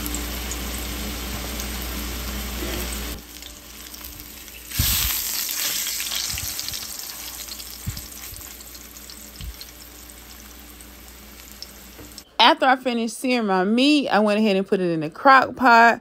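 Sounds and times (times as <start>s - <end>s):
meat sizzling in a pan: 0.0s - 12.2s.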